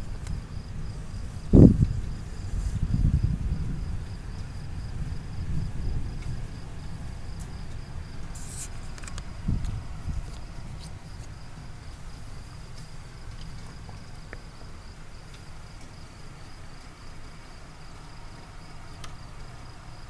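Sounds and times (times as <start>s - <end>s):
crickets chirping: 0.0s - 20.0s
faint ticks: 12.7s - 14.5s, 18.4s - 19.6s.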